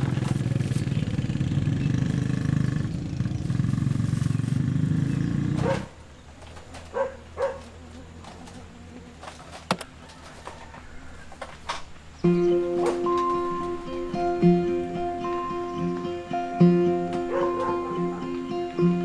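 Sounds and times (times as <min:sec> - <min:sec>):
scooter engine idling: 0:00.0 - 0:06.3.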